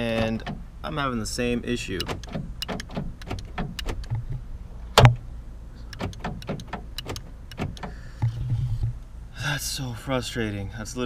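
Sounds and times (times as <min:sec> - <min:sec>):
door lock actuator clicks: 0:02.0 - 0:04.2, 0:05.9 - 0:08.0.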